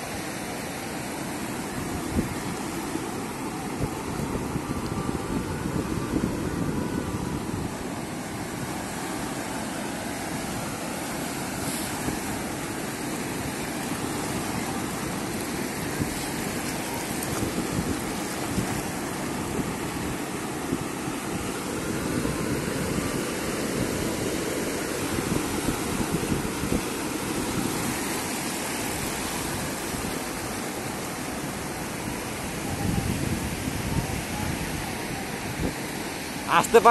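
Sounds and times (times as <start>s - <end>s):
small waves washing over rocks: 8.3s - 33.8s.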